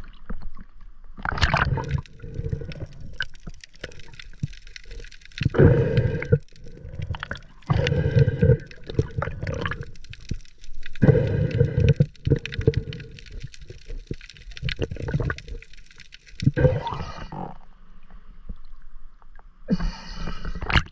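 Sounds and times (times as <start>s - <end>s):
muffled underwater gurgling: 4.8s - 10.0s, 11.0s - 14.0s, 16.4s - 17.6s.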